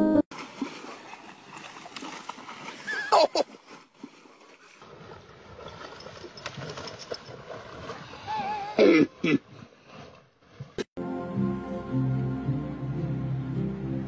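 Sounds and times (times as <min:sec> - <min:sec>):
water sloshing and splashing: 0:00.3 - 0:10.9.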